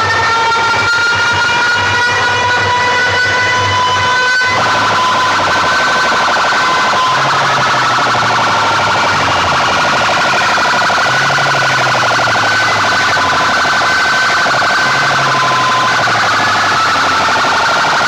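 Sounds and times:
distorted siren-like electronic sound: 0.0 - 18.0
low buzz: 4.5 - 18.0.

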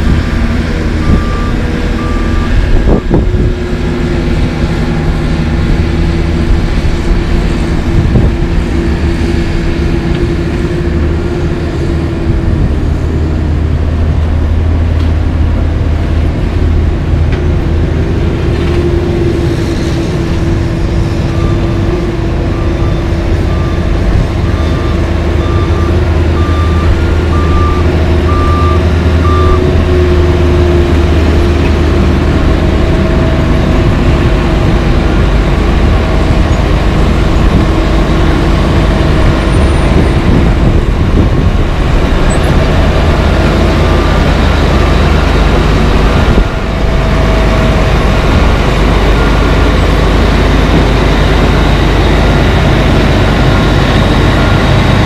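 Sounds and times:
diesel engine running: 0.0 - 55.0
backup alarm beeping: 1.0 - 2.6, 22.5 - 29.8.

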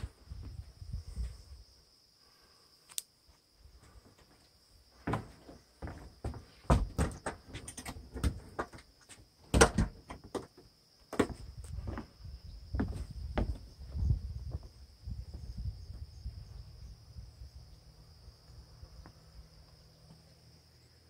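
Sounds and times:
crickets trilling: 0.0 - 21.0
footsteps on wooden steps: 5.0 - 16.1.

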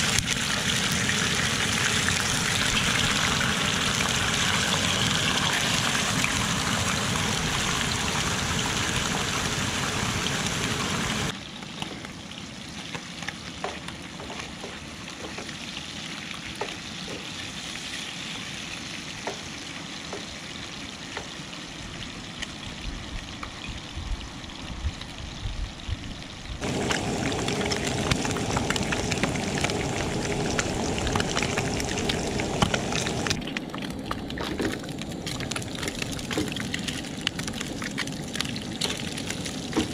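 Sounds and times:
meat sizzling in a skillet: 15.1 - 21.9.

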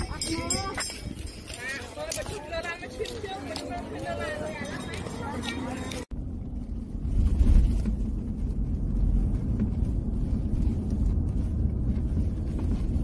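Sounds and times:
car rumble from inside cabin: 6.0 - 13.0.

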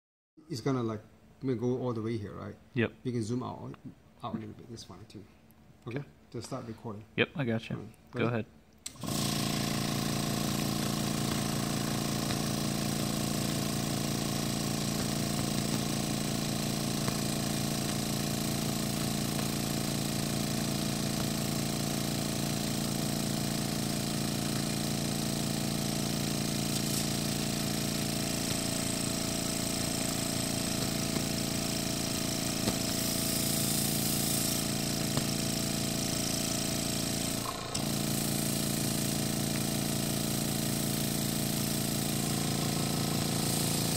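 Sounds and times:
small electric air pump running: 8.8 - 43.9.

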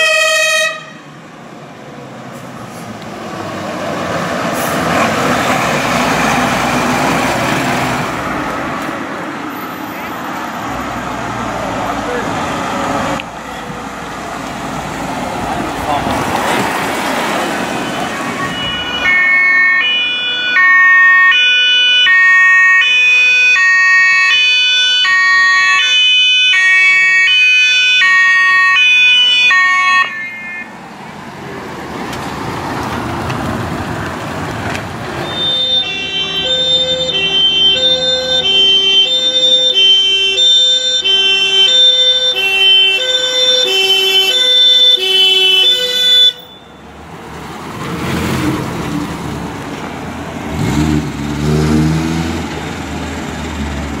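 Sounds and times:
lower-pitched two-tone siren: 0.0 - 1.0, 17.7 - 30.8, 35.2 - 46.9
two-tone emergency siren: 0.0 - 1.0, 17.7 - 30.8, 35.2 - 46.9
vehicle driving past: 2.0 - 9.8, 47.2 - 54.0.

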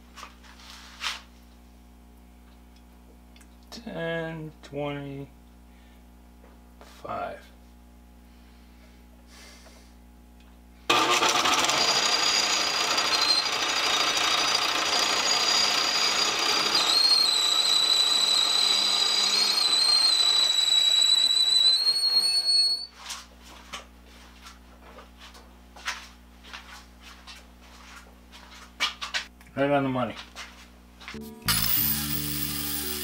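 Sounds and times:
metal lathe running: 10.9 - 22.4, 31.5 - 33.0
high whining tones: 10.9 - 22.9, 31.2 - 33.0.

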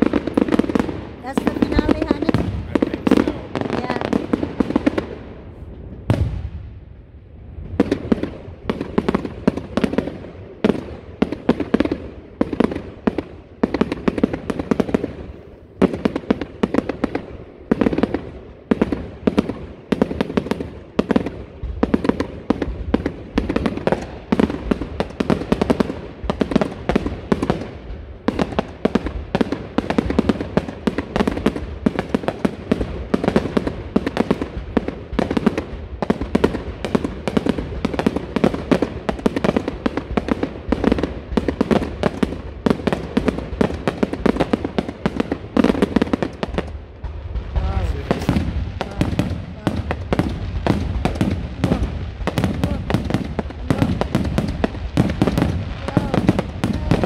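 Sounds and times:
fireworks shells bursting: 45.7 - 57.0.

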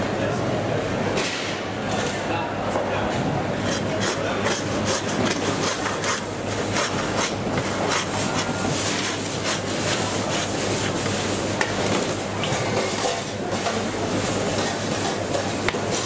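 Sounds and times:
knife scraping and cutting meat: 3.6 - 16.0.

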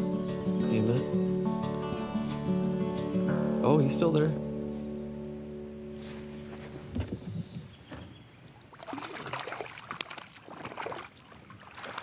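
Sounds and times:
water splashes and knocks: 7.8 - 12.0
water crackling: 8.4 - 12.0.

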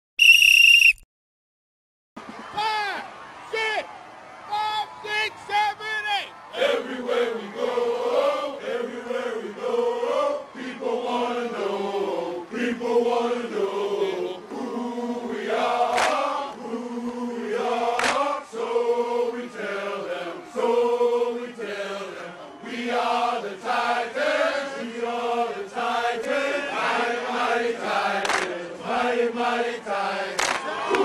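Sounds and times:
group chanting in unison: 6.5 - 31.0.

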